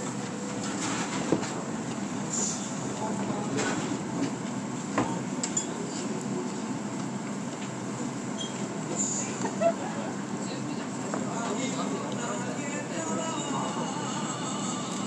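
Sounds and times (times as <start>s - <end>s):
restaurant background din: 2.4s - 6.7s, 8.4s - 15.0s.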